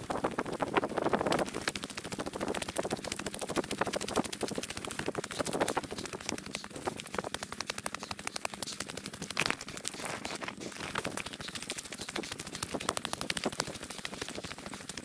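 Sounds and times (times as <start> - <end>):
footsteps on gravel: 9.3 - 11.3.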